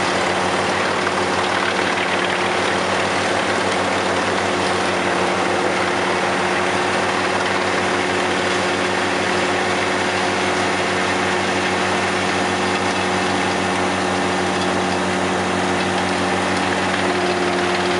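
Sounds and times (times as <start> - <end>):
tractor engine humming: 0.0 - 17.9
wood chipper rushing: 0.0 - 17.9.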